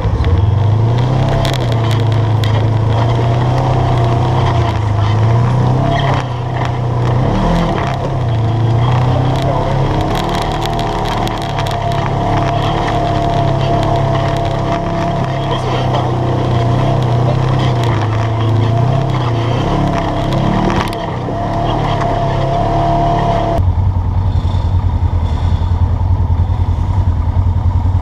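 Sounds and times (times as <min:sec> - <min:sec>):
engine running at low speed: 0:00.0 - 0:28.0
clicks and rattles: 0:00.1 - 0:22.5.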